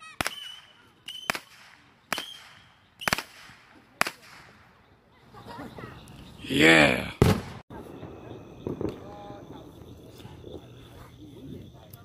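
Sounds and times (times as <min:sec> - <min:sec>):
high firework whistle: 0:00.0 - 0:03.5
firework cracks: 0:00.0 - 0:04.7, 0:07.2 - 0:09.9.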